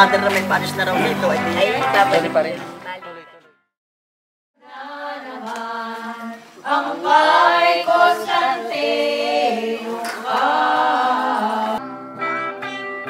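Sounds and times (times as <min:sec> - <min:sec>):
group singing unaccompanied: 0:04.6 - 0:11.8.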